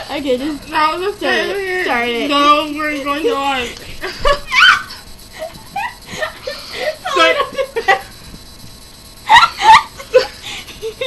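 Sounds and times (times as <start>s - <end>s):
girls laughing and chattering: 0.0s - 8.2s.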